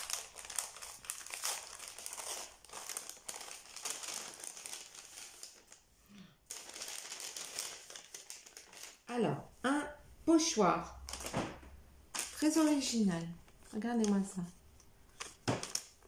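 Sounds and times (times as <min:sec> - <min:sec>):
paper envelopes rustling: 0:00.0 - 0:05.9, 0:06.5 - 0:09.1, 0:11.0 - 0:14.3, 0:15.1 - 0:16.0.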